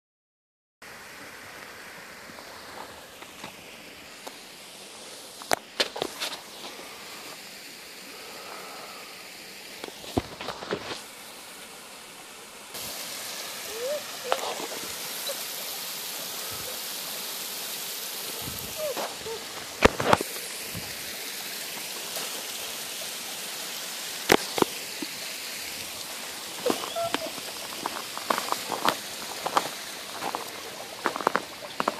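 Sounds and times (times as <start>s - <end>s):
water rushing under ice: 1.4s - 31.9s
footsteps crunching on snow: 9.8s - 11.1s, 13.2s - 15.2s, 18.3s - 21.0s, 25.7s - 31.9s.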